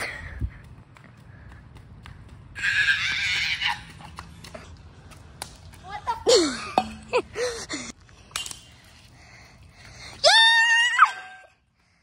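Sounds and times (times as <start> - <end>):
kids shouting and whooping: 2.6 - 4.1, 10.2 - 11.5.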